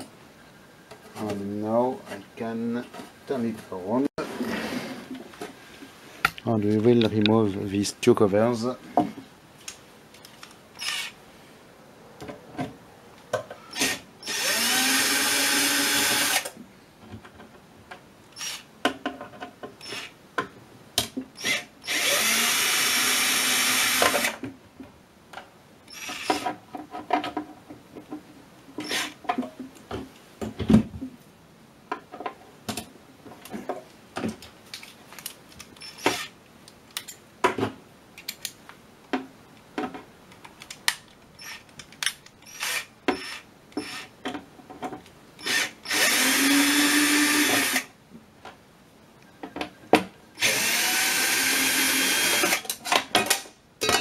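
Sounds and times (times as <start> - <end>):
cordless drill motor whirring: 10.8 - 11.2, 13.7 - 16.5, 18.4 - 18.7, 19.8 - 20.1, 21.4 - 24.4, 25.9 - 26.4, 42.4 - 44.1, 45.4 - 47.9, 50.4 - 52.6.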